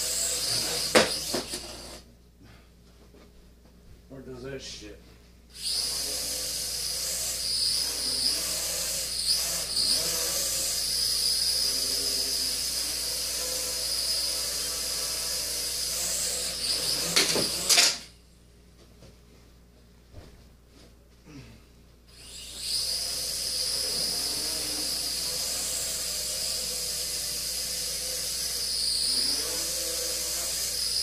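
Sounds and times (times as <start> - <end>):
drone motors whining: 0.0 - 2.0, 5.5 - 18.1, 22.1 - 31.0.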